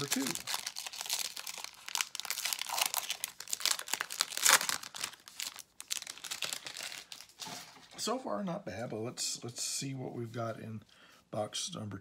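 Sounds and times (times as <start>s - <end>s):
plastic wrapping crinkling and tearing: 0.0s - 7.5s.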